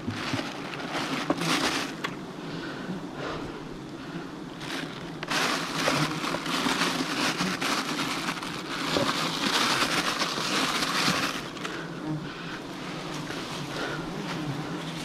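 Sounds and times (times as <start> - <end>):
swarm of bees buzzing: 0.0 - 15.0
rustling crackling clicks: 4.6 - 11.8.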